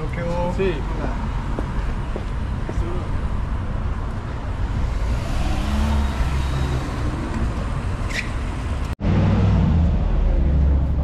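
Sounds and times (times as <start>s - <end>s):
road noise: 0.0s - 11.0s
vehicle engines rumbling: 0.0s - 11.0s
brief high squeak: 8.0s - 8.4s.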